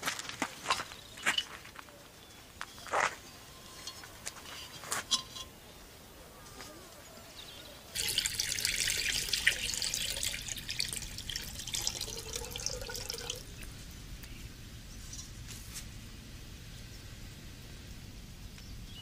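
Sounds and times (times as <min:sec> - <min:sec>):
water pouring into container: 0:08.0 - 0:13.7.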